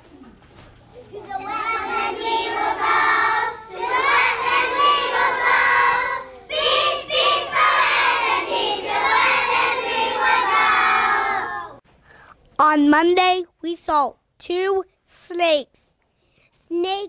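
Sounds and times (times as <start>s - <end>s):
children singing together: 1.1s - 11.8s.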